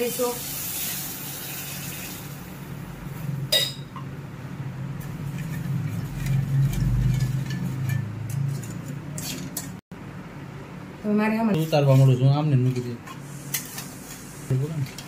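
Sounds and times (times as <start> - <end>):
metal spatula scraping a pan: 5.2 - 9.8.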